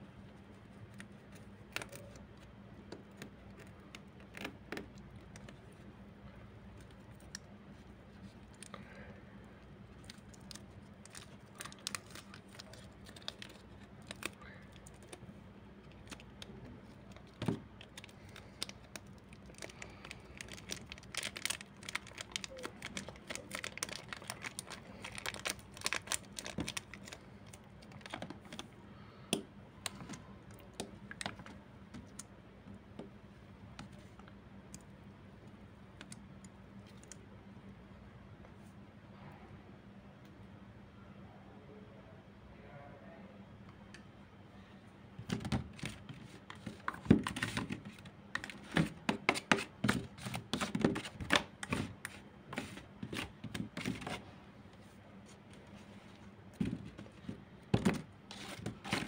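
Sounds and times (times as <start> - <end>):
faint steady hum: 0.0 - 59.0
plastic wrapper crinkling: 9.9 - 28.7.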